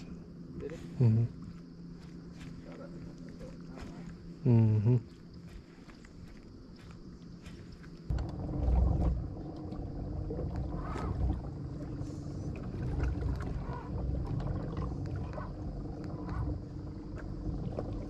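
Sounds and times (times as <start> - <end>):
water moving along hull: 7.3 - 18.0.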